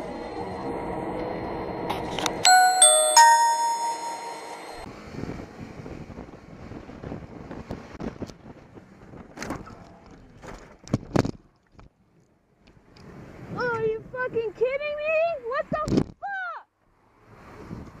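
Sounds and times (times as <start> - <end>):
three-tone chime: 2.5 - 4.9
wind and motorcycle road noise: 5.3 - 11.1, 12.5 - 16.2, 16.9 - 18.0.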